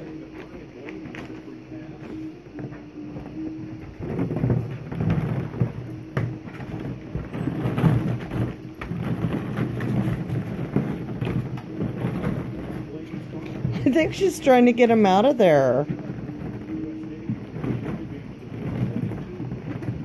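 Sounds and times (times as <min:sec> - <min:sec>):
plastic balls rattling and clattering: 0:02.6 - 0:20.0.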